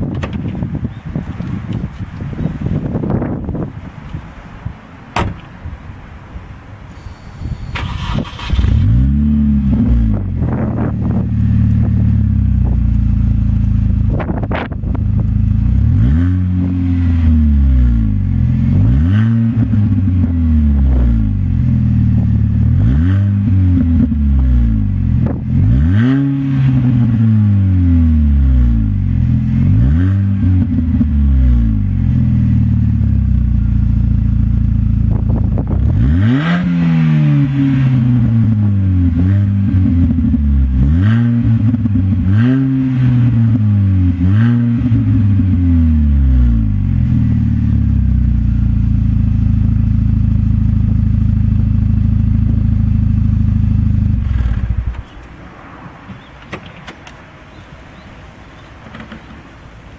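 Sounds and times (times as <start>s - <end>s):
car engine revving and idling: 7.0s - 57.7s.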